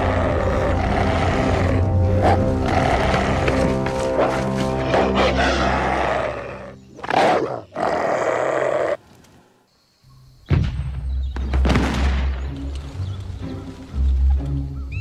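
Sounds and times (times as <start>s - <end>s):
cartoon wolf growling: 0.0s - 9.0s.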